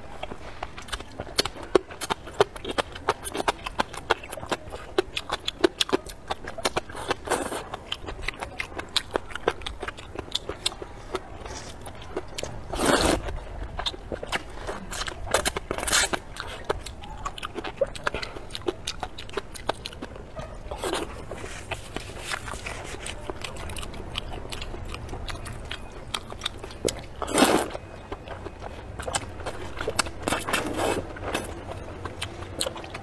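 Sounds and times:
wet chewing and crunching: 0.0 - 33.0
slurping noodles: 12.6 - 13.3, 27.2 - 27.8.

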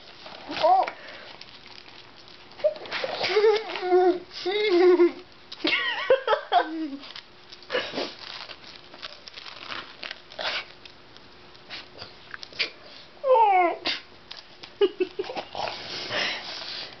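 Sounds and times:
woman's stifled laughter: 4.6 - 7.0, 14.8 - 15.6.

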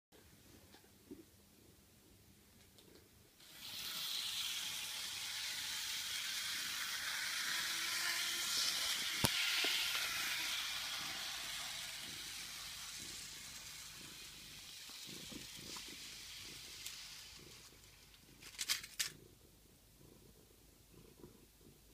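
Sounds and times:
steam-like hiss: 3.4 - 18.1.

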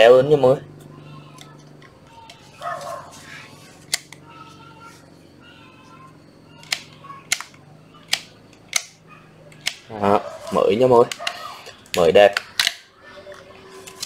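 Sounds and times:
sharp plastic clicks: 3.8 - 4.3, 6.5 - 9.9, 11.0 - 14.0.

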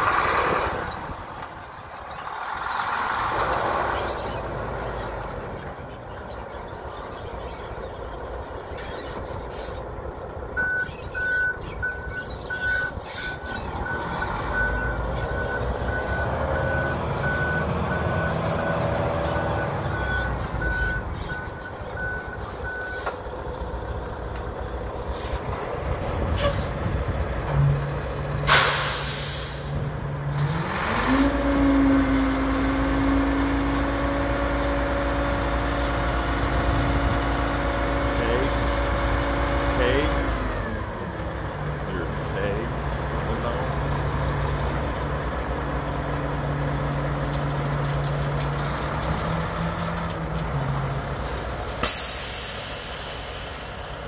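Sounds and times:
diesel truck engine: 0.0 - 54.0
reversing alarm beeping: 10.6 - 23.0
air brakes hiss: 28.4 - 29.8, 51.8 - 54.0.

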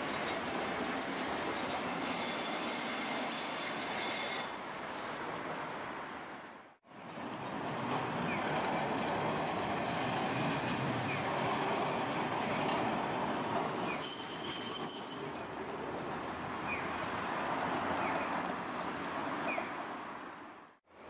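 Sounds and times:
high-pitched wheel squeal: 0.1 - 4.6, 13.6 - 15.6
tram wheels rumbling on rails: 5.5 - 18.9
cars passing: 15.8 - 20.8.

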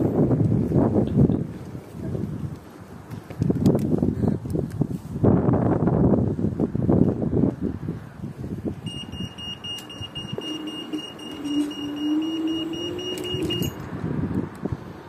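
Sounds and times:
wind rumble on microphone: 0.0 - 15.0
rapid electronic beeping: 8.9 - 13.8
electric motors whining: 8.9 - 13.9.

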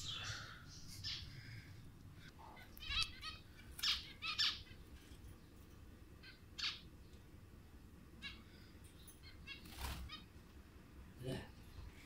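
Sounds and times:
budgerigar chirping: 2.8 - 4.8, 6.2 - 6.8.

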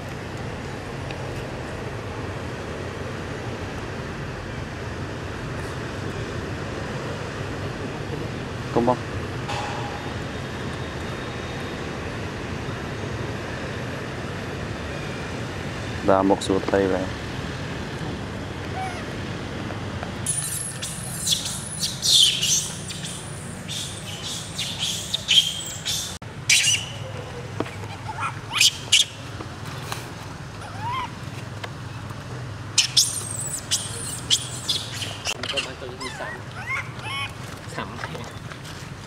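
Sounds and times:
baby monkey screaming: 18.7 - 19.1, 20.3 - 27.0, 27.9 - 29.2, 30.6 - 31.2, 32.8 - 37.4.

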